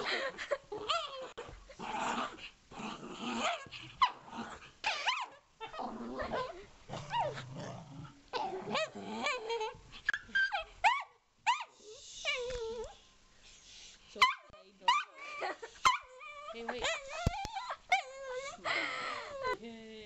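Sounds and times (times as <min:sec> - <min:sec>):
dog growling: 0:00.7 - 0:09.8.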